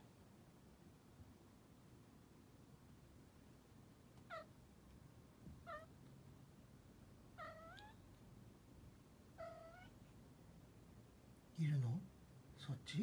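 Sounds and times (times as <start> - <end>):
kitten meowing softly: 5.6 - 5.9, 7.4 - 8.1, 9.4 - 10.0.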